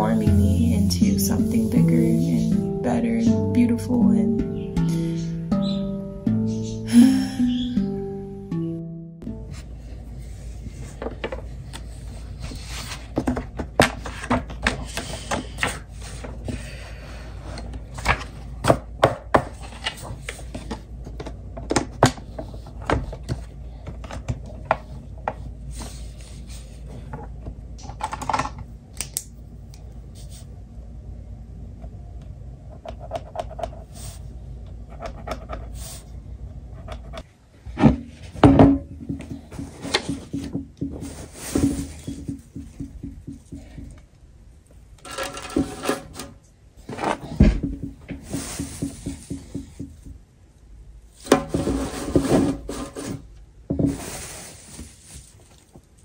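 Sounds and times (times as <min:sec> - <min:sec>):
steady low hum: 0:00.0 - 0:54.0
paper shuffled and tapped: 0:39.0 - 0:44.0, 0:46.9 - 0:50.2.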